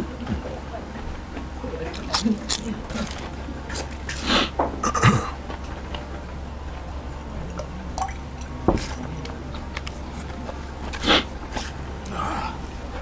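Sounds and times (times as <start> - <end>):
steady low hum: 0.0 - 13.0
chewing fried food: 1.8 - 4.3
gulping water: 7.4 - 9.4.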